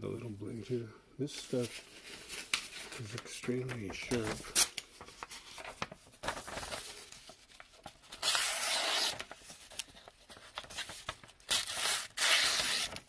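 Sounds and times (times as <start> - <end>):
knife slicing through paper: 8.2 - 9.4, 11.5 - 13.0.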